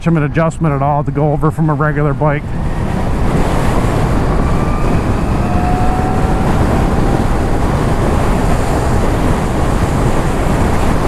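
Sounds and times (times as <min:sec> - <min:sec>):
road noise: 0:00.0 - 0:11.0
wind rushing over microphone: 0:00.0 - 0:11.0
faint rising whine: 0:02.4 - 0:10.0.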